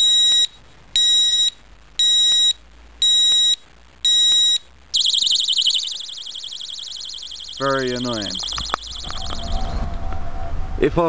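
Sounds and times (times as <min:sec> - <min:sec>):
high-pitched alarm beeps: 0:00.0 - 0:09.8
warbling alarm siren: 0:04.9 - 0:10.2.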